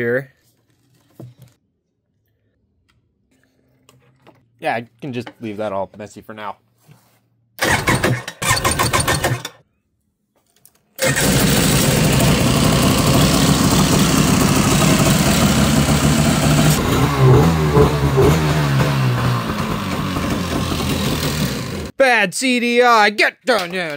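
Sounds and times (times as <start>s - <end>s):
electric starter cranking: 7.6s - 9.6s, 11.0s - 21.9s
two-stroke engine running: 11.0s - 21.9s.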